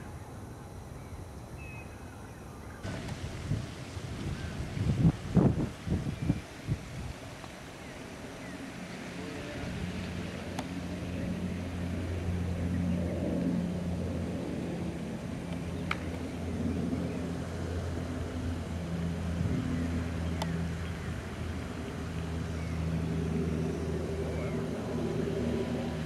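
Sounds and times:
golf cart engine humming: 7.0 - 26.0.

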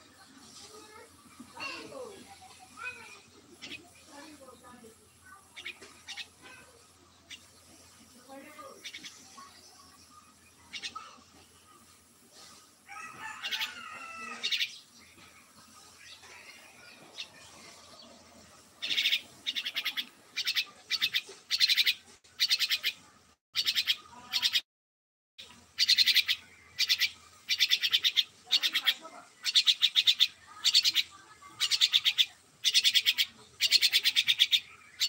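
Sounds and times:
myna rattling calls: 5.2 - 7.6, 8.3 - 9.2, 18.8 - 23.0, 23.6 - 24.6, 25.6 - 35.0.

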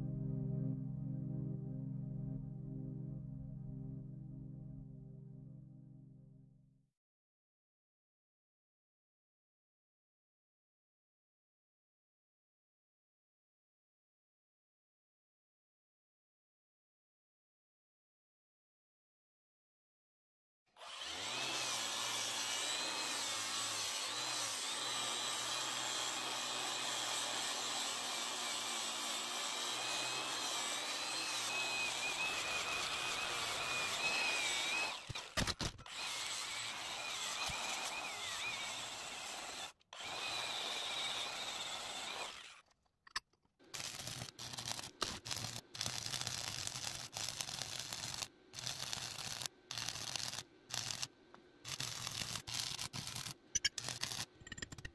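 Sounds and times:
angle grinder grinding metal: 20.8 - 42.7, 43.7 - 51.1, 51.7 - 54.9
stick welder arc crackling: 43.7 - 54.9.

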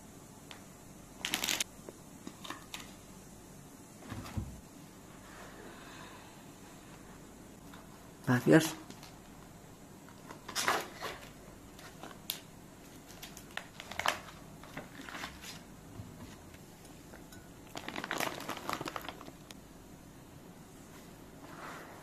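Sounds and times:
crinkling and rustling: 1.2 - 3.0, 10.0 - 16.7, 17.7 - 19.6.

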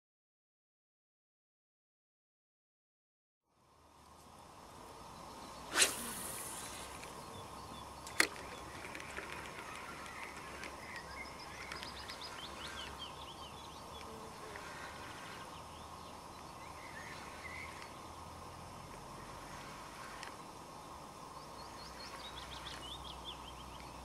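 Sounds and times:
small birds chirping: 4.0 - 24.0
rushing splash-like burst: 5.7 - 6.9.

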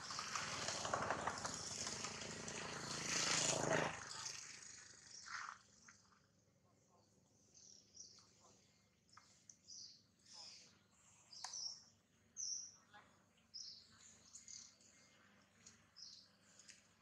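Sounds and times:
small birds chirping: 4.0 - 17.0.

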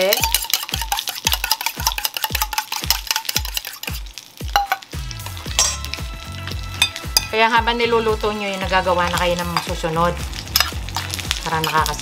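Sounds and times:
fork beating egg in metal bowl: 0.0 - 4.2, 10.6 - 12.0.

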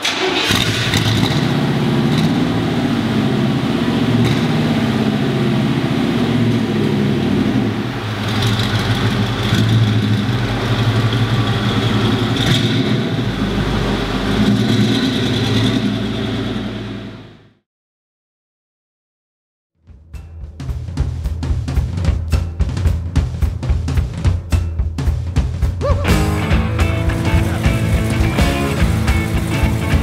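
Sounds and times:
pickup truck engine idling: 0.0 - 17.3, 26.1 - 30.0.

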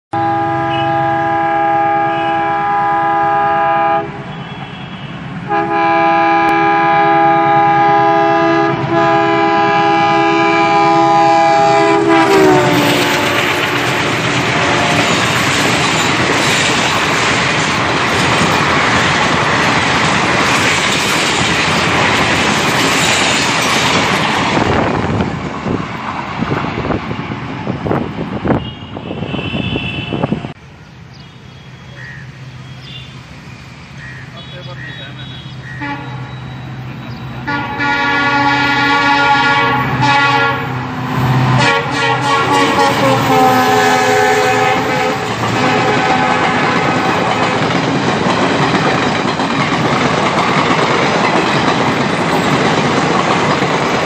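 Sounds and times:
train horn blasts: 0.1 - 15.4, 28.5 - 30.6, 34.4 - 36.6, 37.4 - 47.7
train coaches rushing and rattling: 0.7 - 30.8, 31.5 - 54.0
train wheel clacks: 12.2 - 26.2, 41.6 - 54.0.

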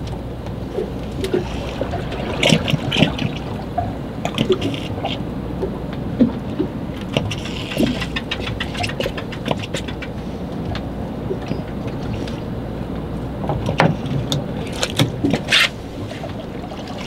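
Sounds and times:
boat low rumble: 0.0 - 17.0
water against hull: 0.0 - 17.0
tackle clicks and knocks: 7.0 - 10.9.

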